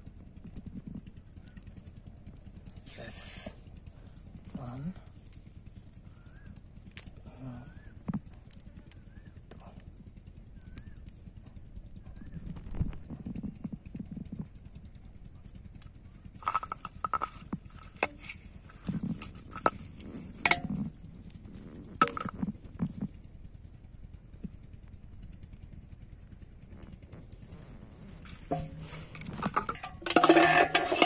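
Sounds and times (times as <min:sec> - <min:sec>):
sharp clicks and knocks: 0:16.4 - 0:20.9, 0:21.9 - 0:23.2, 0:28.2 - 0:31.0.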